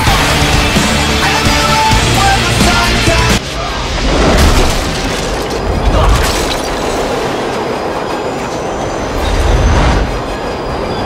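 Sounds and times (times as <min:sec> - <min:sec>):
subway train rumbling in tunnel: 0:00.0 - 0:11.0
faint high wheel squeal: 0:07.6 - 0:11.0.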